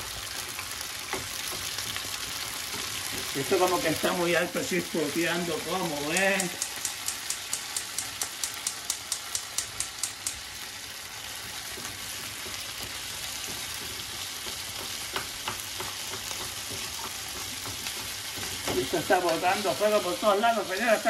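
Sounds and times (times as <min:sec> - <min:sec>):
meat sizzling in hot oil: 0:00.0 - 0:21.0
spatula tapping pan: 0:02.7 - 0:03.4, 0:06.0 - 0:10.5, 0:11.4 - 0:19.6
gas igniter clicking: 0:06.4 - 0:10.4.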